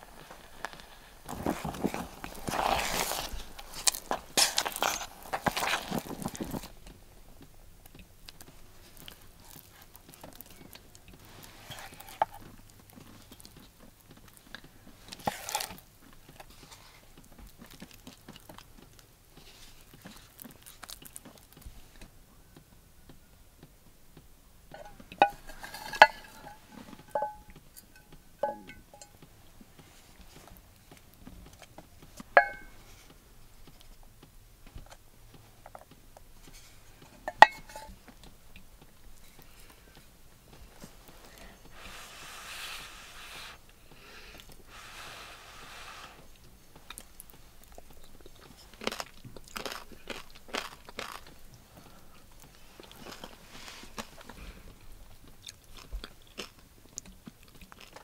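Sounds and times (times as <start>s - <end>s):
soft wet scrapes: 0.0s - 6.8s, 8.4s - 13.6s, 14.6s - 18.2s, 24.7s - 31.0s, 39.2s - 48.8s, 51.9s - 54.8s
wooden spoon stirring porridge: 0.0s - 22.1s, 24.7s - 34.0s, 35.6s - 55.7s
spoon clinking against bowl: 32.4s - 32.8s, 37.3s - 37.9s.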